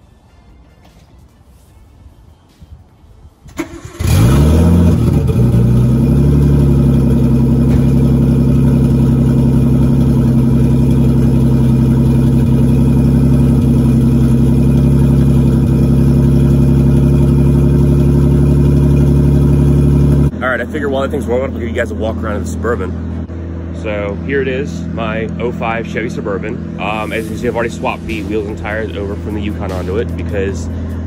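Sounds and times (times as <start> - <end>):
car engine cold start: 3.4 - 20.2
car engine idling loudly: 4.0 - 31.0.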